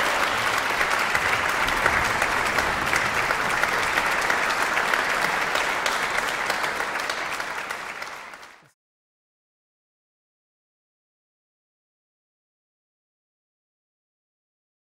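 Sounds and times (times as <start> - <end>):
audience applause: 0.0 - 8.7.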